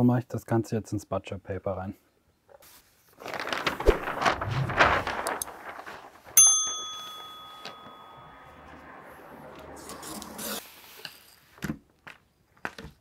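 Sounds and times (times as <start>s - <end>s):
paper crinkling and rustling: 2.6s - 8.4s
bell ding: 6.4s - 8.7s.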